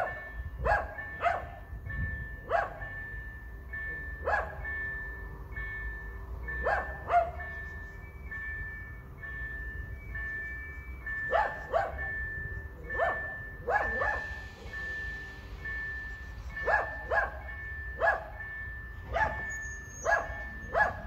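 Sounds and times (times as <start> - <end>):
dog barking: 0.0 - 1.6, 2.5 - 2.9, 4.2 - 4.6, 6.6 - 7.5, 11.3 - 12.2, 12.9 - 14.4, 16.6 - 17.4, 18.0 - 18.4, 19.1 - 21.0
electric freight train rumbling: 0.0 - 21.0
steady high tone: 0.0 - 21.0.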